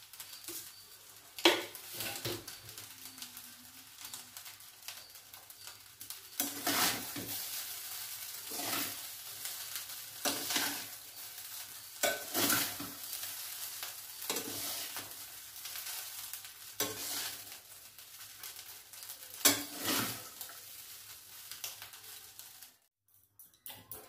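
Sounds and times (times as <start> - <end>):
metal spatula scraping steel pan: 1.5 - 2.6, 6.3 - 9.6, 10.2 - 13.3, 14.2 - 17.6, 19.3 - 20.6.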